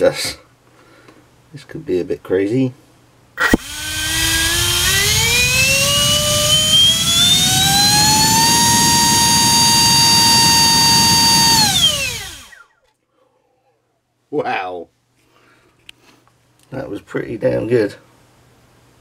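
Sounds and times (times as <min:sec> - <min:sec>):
electric ducted fan whine: 0:00.0 - 0:13.0.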